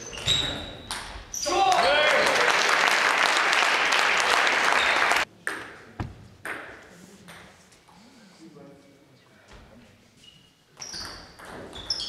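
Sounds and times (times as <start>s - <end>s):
crowd applause and cheering: 1.5s - 5.3s.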